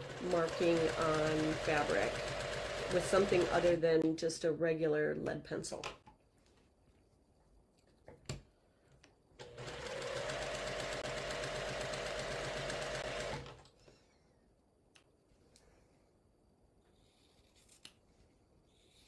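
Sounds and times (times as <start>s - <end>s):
sewing machine stitching: 0.0s - 3.8s, 9.4s - 13.7s.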